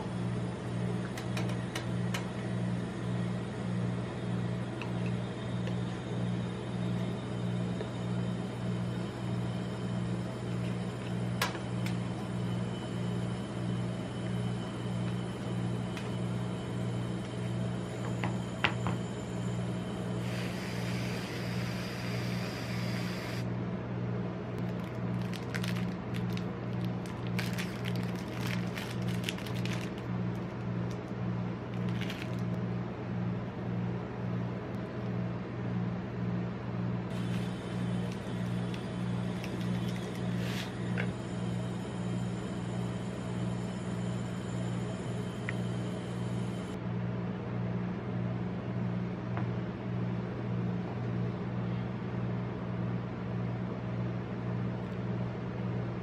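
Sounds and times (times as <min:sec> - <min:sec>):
refrigeration unit humming: 0:00.0 - 0:56.0
aerosol can spraying hiss: 0:20.2 - 0:23.4
plastic wrapper crinkling: 0:24.6 - 0:31.0, 0:31.7 - 0:32.6, 0:38.0 - 0:40.7.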